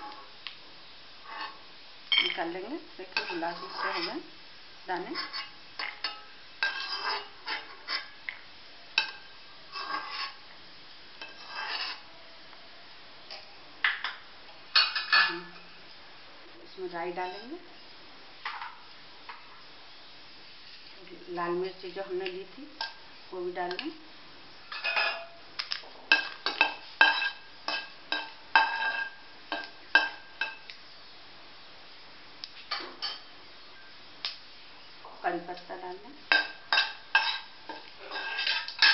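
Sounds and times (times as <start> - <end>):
metal spoon scraping a pan: 1.2 - 1.6, 3.0 - 4.3, 5.0 - 8.2, 9.0 - 10.4, 11.2 - 12.1, 17.2 - 17.7, 24.7 - 25.4, 26.1 - 30.7, 36.3 - 38.9
metal skimmer scraping pan: 3.2 - 4.2, 5.1 - 8.1, 9.0 - 10.4, 11.2 - 12.0.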